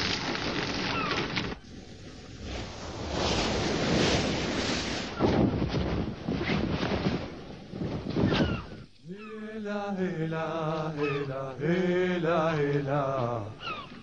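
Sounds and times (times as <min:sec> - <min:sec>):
wind: 0:00.0 - 0:09.4, 0:10.7 - 0:14.0
sea waves: 0:00.9 - 0:05.2
man singing unaccompanied: 0:09.0 - 0:13.6
gull crying: 0:11.0 - 0:11.3.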